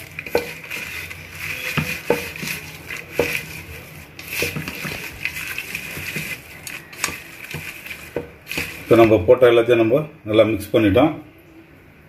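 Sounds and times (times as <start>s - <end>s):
spoon stirring in pot: 0.0s - 9.2s
spoon knocking against pot: 0.2s - 0.8s, 1.5s - 3.6s.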